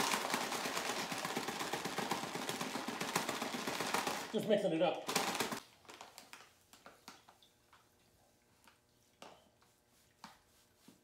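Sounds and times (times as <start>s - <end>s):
noisy clatter: 0.0s - 5.6s
paper bag rustling: 0.0s - 6.5s.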